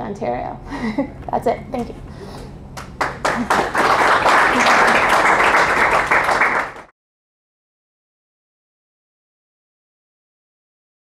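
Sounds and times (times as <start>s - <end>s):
audience applauding: 2.8s - 6.9s.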